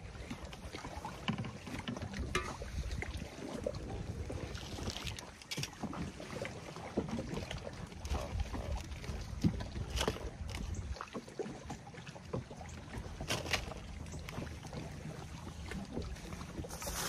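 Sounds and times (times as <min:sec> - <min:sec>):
water lapping against boat hull: 0:00.0 - 0:17.0
wind on microphone: 0:02.0 - 0:05.2.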